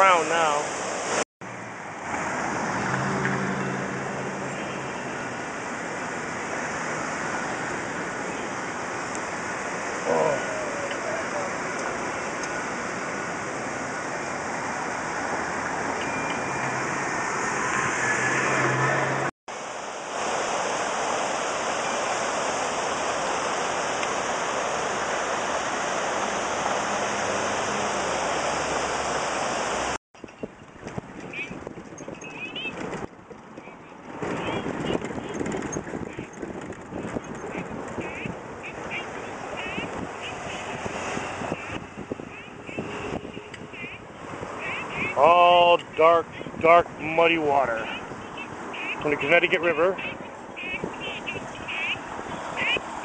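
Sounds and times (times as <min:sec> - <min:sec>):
steady rushing traffic noise: 0:00.0 - 0:53.0
car engine passing: 0:01.4 - 0:30.0.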